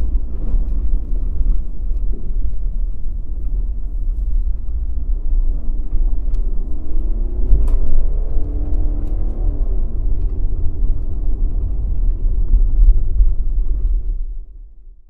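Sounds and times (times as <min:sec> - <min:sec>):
car engine: 0:00.0 - 0:14.7
road and wind noise: 0:00.0 - 0:15.0.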